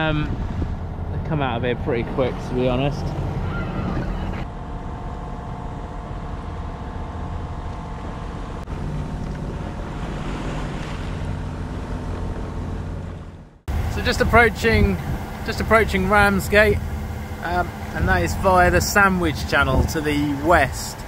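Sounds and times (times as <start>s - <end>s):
wind on microphone: 0.0s - 4.4s, 8.0s - 15.4s, 17.9s - 20.4s
boat engine droning: 0.0s - 21.0s
waves: 7.6s - 21.0s.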